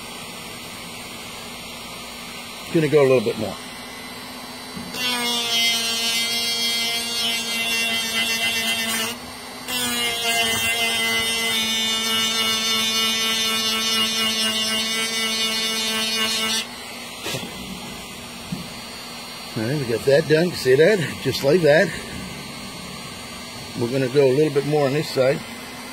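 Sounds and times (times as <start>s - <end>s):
rotary tool grinding metal: 4.9s - 25.6s.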